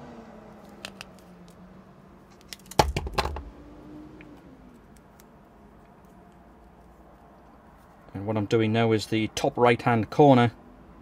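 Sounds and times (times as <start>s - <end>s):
wire and side cutters clicking: 4.2s - 6.4s.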